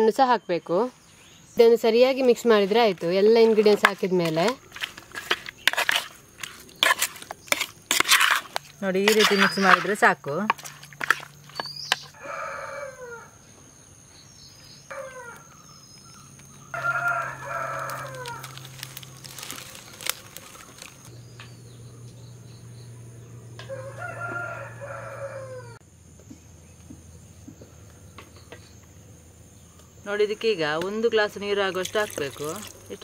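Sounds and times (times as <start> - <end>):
rooster crowing: 12.1 - 13.6, 14.9 - 15.5, 16.6 - 18.8, 23.6 - 25.8.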